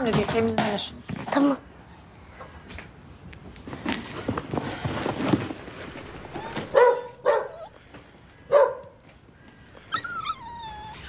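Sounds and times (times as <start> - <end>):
dog whining: 6.0 - 7.8, 9.8 - 11.0
dog barking: 6.7 - 7.7, 8.5 - 9.0.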